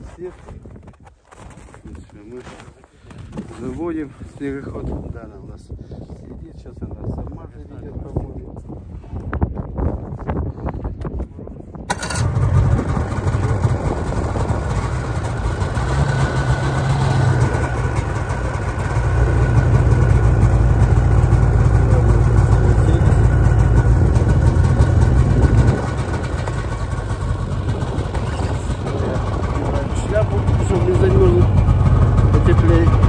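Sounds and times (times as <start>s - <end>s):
snowmobile engine running: 11.9s - 33.0s.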